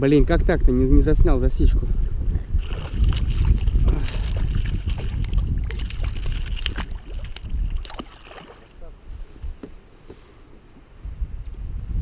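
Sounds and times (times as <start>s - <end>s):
wind rumble on microphone: 0.0s - 9.8s, 10.8s - 12.0s
water sloshing and splashing: 2.6s - 8.9s.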